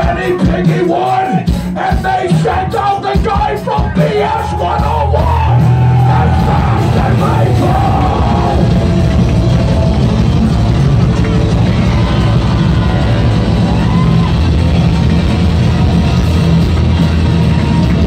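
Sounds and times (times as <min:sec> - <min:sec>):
drums: 0:00.0 - 0:18.0
punk rock band playing: 0:00.0 - 0:18.0
person yelling vocals: 0:03.5 - 0:08.6.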